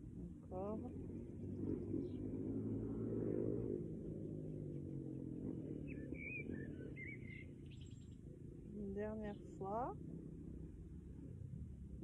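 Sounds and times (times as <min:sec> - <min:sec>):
passing engine hum: 0:00.0 - 0:12.0
bird chirping: 0:05.7 - 0:08.2.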